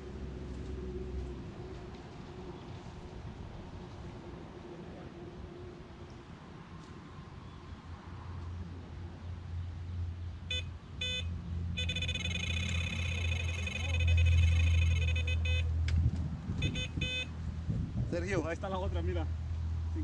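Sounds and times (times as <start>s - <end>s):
electronic bite alarm beeping: 10.5s - 15.7s, 16.6s - 17.3s.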